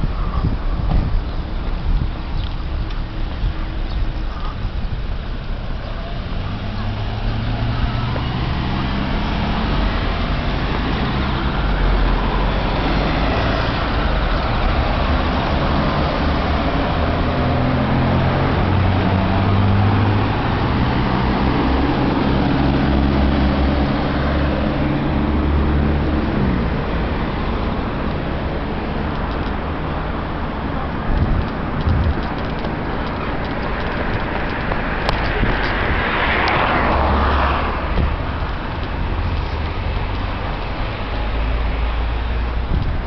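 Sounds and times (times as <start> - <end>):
low engine hum: 0.0 - 43.0
road noise: 0.0 - 43.0
vehicle engines running: 0.0 - 43.0.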